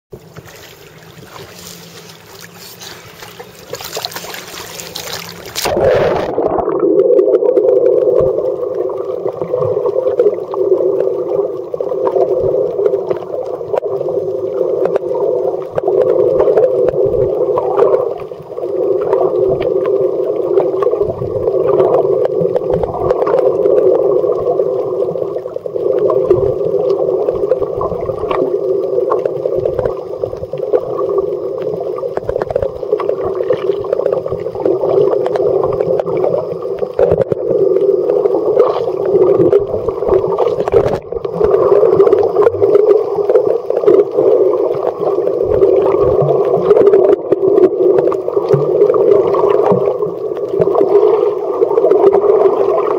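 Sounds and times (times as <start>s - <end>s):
water surface splashing: 0.1s - 6.8s
faint underwater clicks and crackles: 0.1s - 52.9s
muffled underwater rumble: 0.1s - 52.9s.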